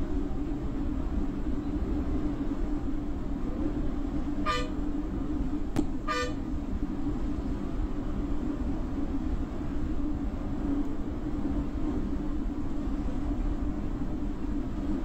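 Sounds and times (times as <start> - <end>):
bus engine drone: 0.0 - 15.0
road noise: 0.0 - 15.0
horn blasts: 4.4 - 4.9, 6.0 - 6.5.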